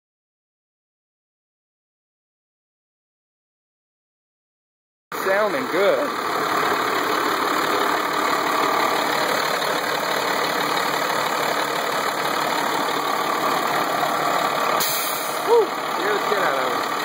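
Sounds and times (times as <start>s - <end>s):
diesel engine idling: 5.1s - 17.0s.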